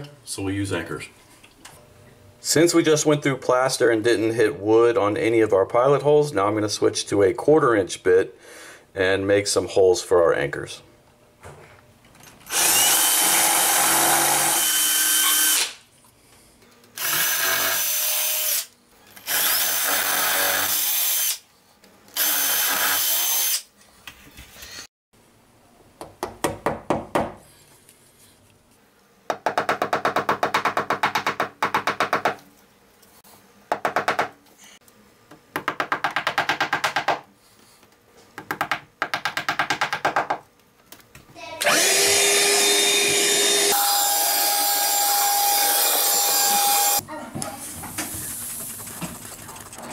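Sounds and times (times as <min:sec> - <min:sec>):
cordless drill drilling through plaster: 0:12.5 - 0:15.8, 0:17.0 - 0:21.4, 0:22.2 - 0:23.6, 0:41.6 - 0:47.0
hammer tapping plastic wall anchors: 0:29.3 - 0:32.4, 0:35.5 - 0:37.3, 0:38.4 - 0:40.4.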